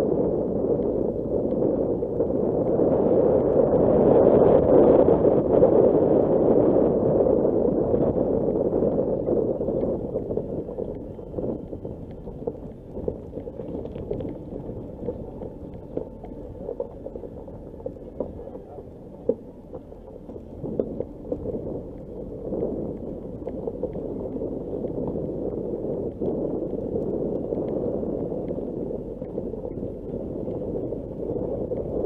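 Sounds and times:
car tyres rumbling on dirt track: 0.0 - 32.0
stones crunching under wheels: 8.7 - 32.0.

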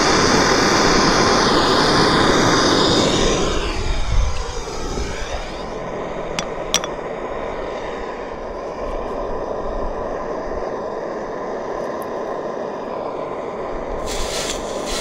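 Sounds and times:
gas torch rushing: 0.0 - 15.0
hot tongs hissing in water: 14.0 - 15.0.

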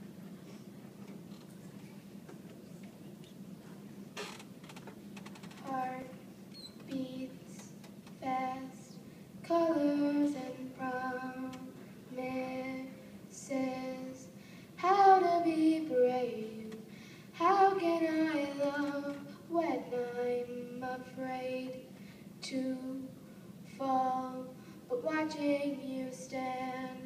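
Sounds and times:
boy singing into a microphone: 5.6 - 21.8, 22.4 - 27.0.

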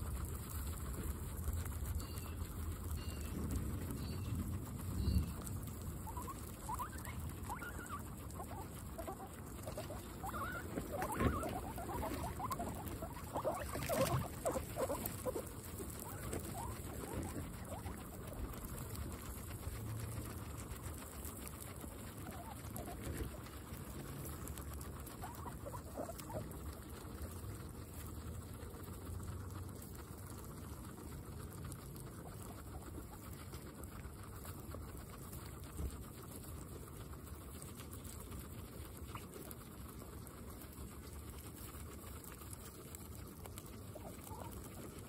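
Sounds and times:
guinea pigs chewing grass: 0.0 - 45.0.

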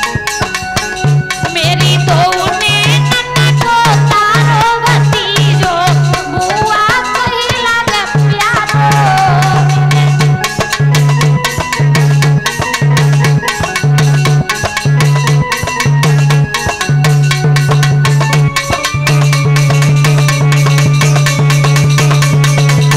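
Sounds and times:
fast hand drum beat: 0.0 - 22.9
electronic keyboard melody: 8.2 - 22.9.

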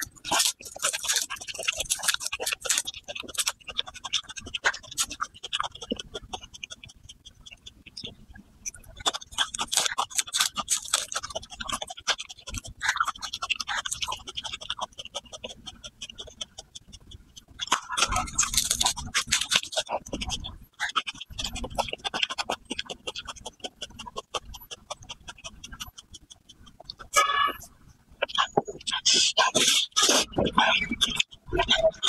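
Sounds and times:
garlic skins crackling: 0.0 - 6.3, 9.0 - 13.2, 17.6 - 20.4
crunching and chewing: 0.0 - 32.0.

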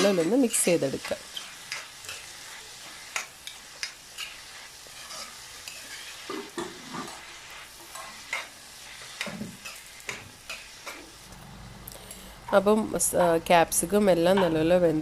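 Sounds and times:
vegetables sizzling in oil: 0.0 - 11.4, 12.0 - 15.0
metal spoon scraping wok: 4.2 - 7.3.

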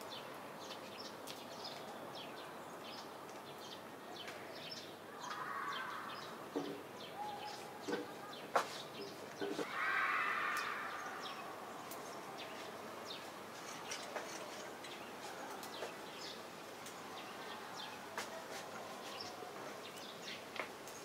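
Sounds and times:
light crackles and ticks: 0.0 - 2.0, 2.9 - 4.4, 11.8 - 17.0, 18.2 - 21.0
cat rubbing against leaves: 17.8 - 19.9.

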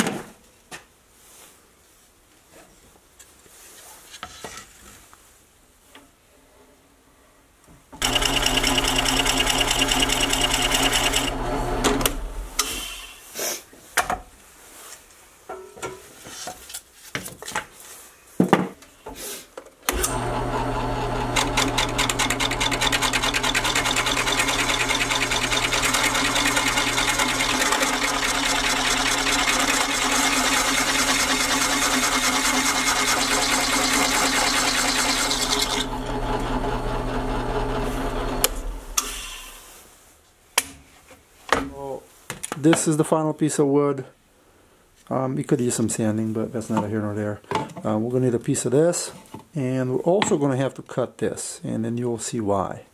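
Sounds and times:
drill press cutting plywood: 8.0 - 12.9, 19.9 - 39.6.

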